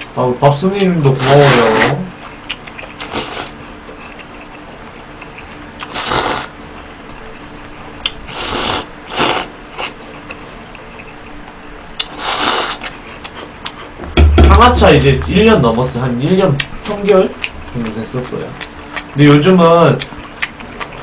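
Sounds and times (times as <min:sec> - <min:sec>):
person slurping noodles: 0:01.2 - 0:02.0, 0:05.9 - 0:06.5, 0:08.3 - 0:09.9, 0:12.1 - 0:12.8.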